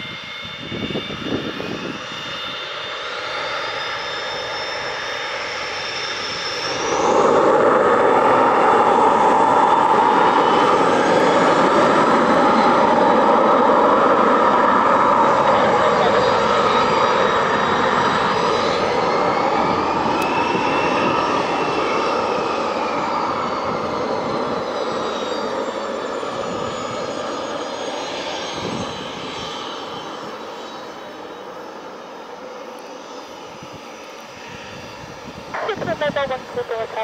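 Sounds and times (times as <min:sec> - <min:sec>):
aircraft engines: 0:00.0 - 0:37.0.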